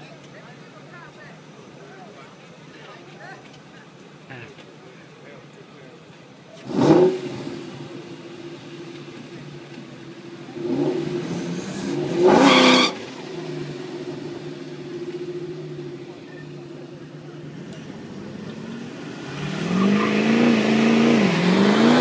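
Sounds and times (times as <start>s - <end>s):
vehicle engine idling and revving: 0.0s - 22.0s.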